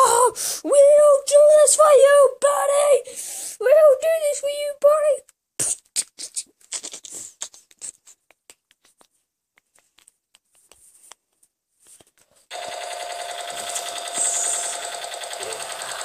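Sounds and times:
toy machine gun buzzing rattle: 12.5 - 16.0.

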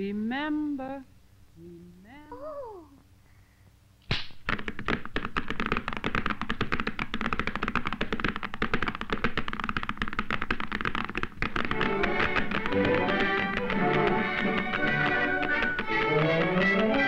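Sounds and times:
sharp crack: 4.0 - 5.8
horse hooves clattering on cobblestones: 4.7 - 17.0.

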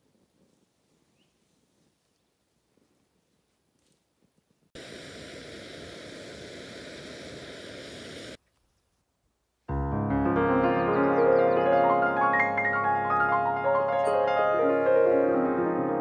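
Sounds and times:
camping stove hissing: 4.8 - 8.4
piano music: 9.7 - 16.0.

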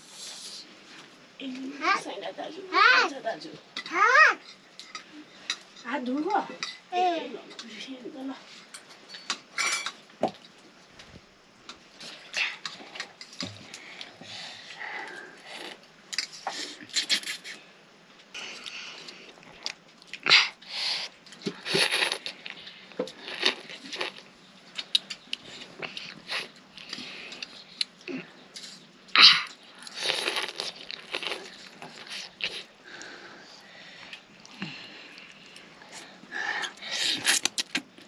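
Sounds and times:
chewing: 18.2 - 20.6, 21.2 - 28.8, 29.4 - 33.2
people slurping noodles: 20.2 - 22.6, 35.9 - 37.9.

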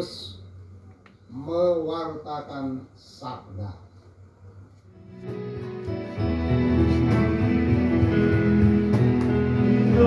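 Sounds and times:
electronic keyboard chords: 5.0 - 10.0.

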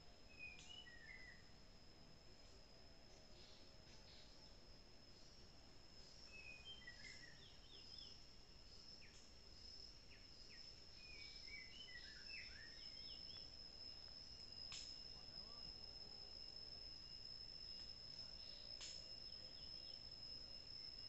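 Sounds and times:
insect drone: 0.0 - 21.0
bird chirps: 6.2 - 8.2, 10.1 - 13.5
sharp click: 14.7 - 15.0.

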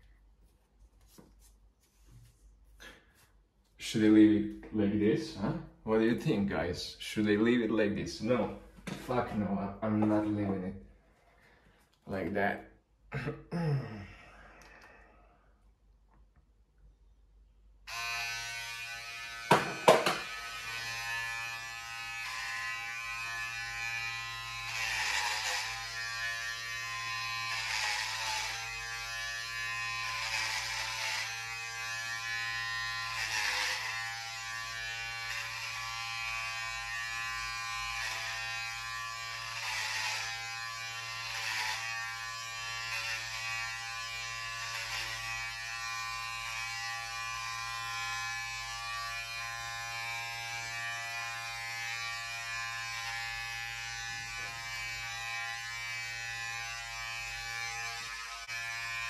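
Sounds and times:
electric hair clippers buzzing: 17.9 - 59.0
sharp knocks: 19.5 - 20.3.

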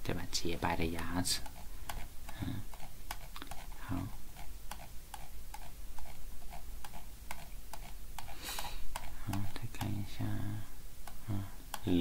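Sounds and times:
mouse scroll wheel clicks: 0.9 - 3.8, 4.4 - 10.0.

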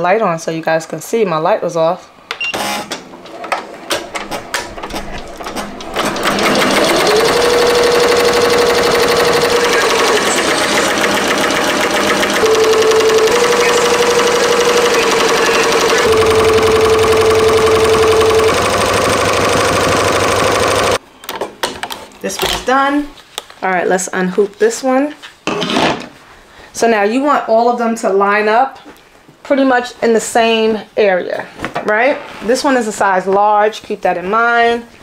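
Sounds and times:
embroidery machine needle chatter: 5.9 - 21.0.

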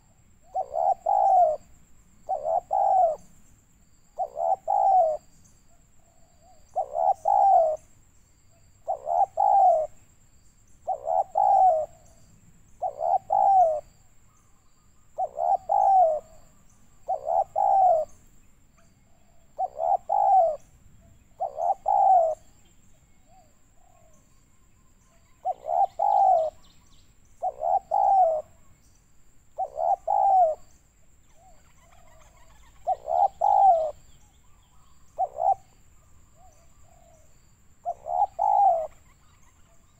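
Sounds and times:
dove cooing: 0.0 - 3.3, 4.1 - 7.9, 8.8 - 10.0, 10.8 - 12.2, 12.8 - 14.0, 15.1 - 18.2, 19.2 - 20.7, 21.3 - 22.6, 25.3 - 26.7, 27.4 - 28.8, 29.6 - 30.7, 31.3 - 39.9.

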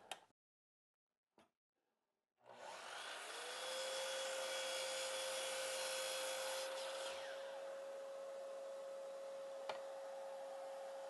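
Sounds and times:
miter saw whining: 5.9 - 7.8.

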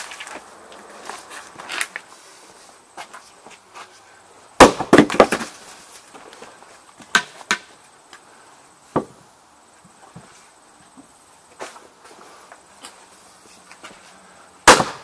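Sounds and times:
axe chopping firewood: 4.6 - 5.5, 7.0 - 7.7, 14.6 - 15.0
split wood pieces knocking: 4.6 - 5.5.

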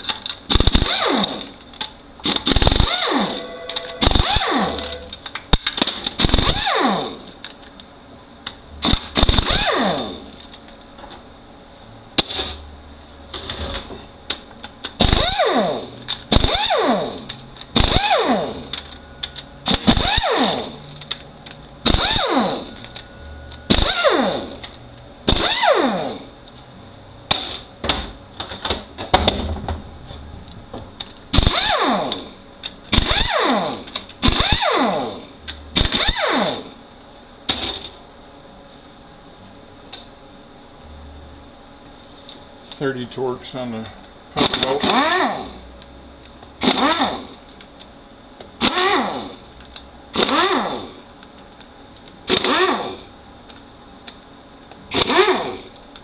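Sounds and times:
pneumatic air ratchet bursts: 0.5 - 1.5, 2.2 - 5.2, 6.2 - 7.3, 8.8 - 10.3, 15.0 - 18.7, 19.7 - 20.9, 21.8 - 22.8, 23.7 - 24.7, 25.3 - 26.2, 31.3 - 32.3, 32.9 - 36.8, 44.4 - 45.6, 46.6 - 47.4, 48.6 - 49.4, 50.2 - 51.0, 52.3 - 53.1, 54.9 - 55.8.

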